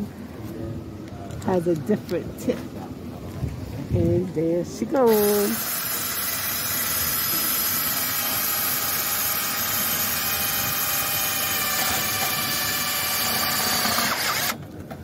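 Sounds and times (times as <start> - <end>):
cordless drill whining and grinding: 5.1 - 14.6.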